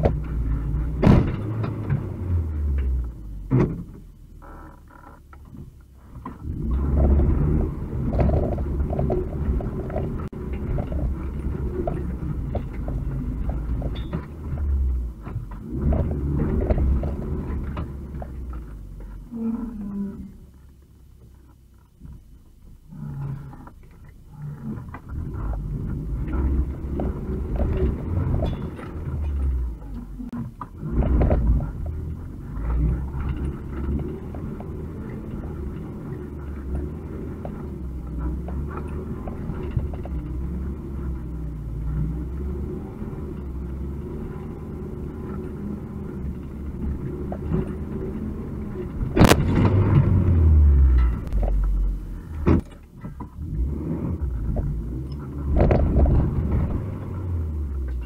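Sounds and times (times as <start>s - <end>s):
van engine rumble: 0.0s - 58.0s
body knocks and rattles: 2.8s - 19.3s, 24.8s - 42.7s.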